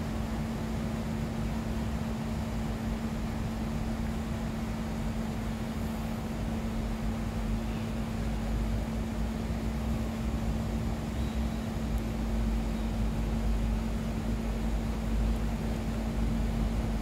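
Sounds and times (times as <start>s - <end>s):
constant hum: 0.0s - 17.0s.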